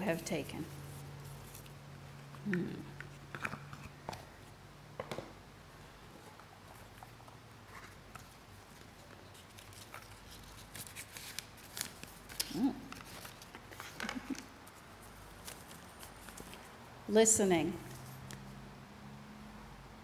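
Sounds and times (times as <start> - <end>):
paper rustling and crinkling: 0.7 - 1.8, 6.2 - 16.8.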